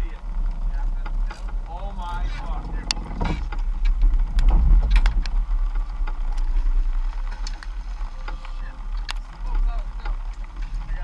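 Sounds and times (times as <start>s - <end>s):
boat engine rumble: 0.0s - 11.0s
sharp clicks and knocks: 0.5s - 11.0s.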